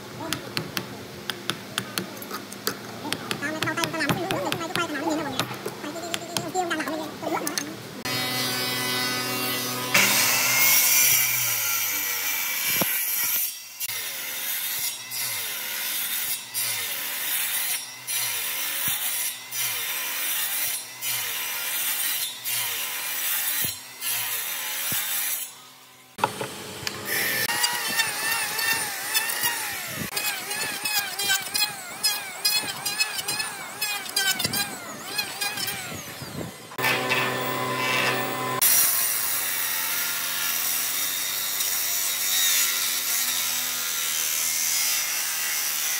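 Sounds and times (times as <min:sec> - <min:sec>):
circular saw cutting wood: 0:07.6 - 0:45.9
electric hand planer running: 0:26.2 - 0:38.8.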